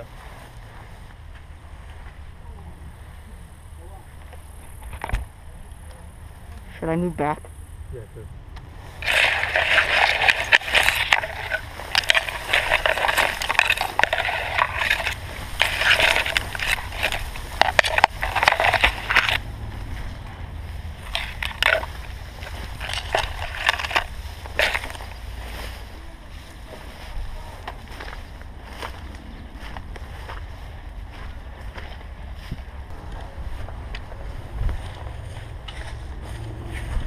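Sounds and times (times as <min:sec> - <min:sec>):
wind rumble on microphone: 0:07.7 - 0:37.0
grass stalks rustling: 0:08.6 - 0:37.0.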